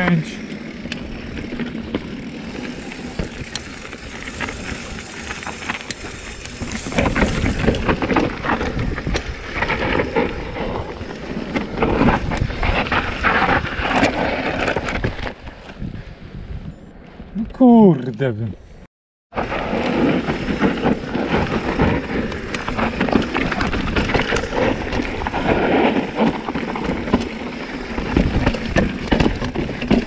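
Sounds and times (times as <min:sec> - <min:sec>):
bike tyres on loose ground: 0:00.0 - 0:16.7, 0:19.3 - 0:30.0
wind on microphone: 0:15.0 - 0:16.9.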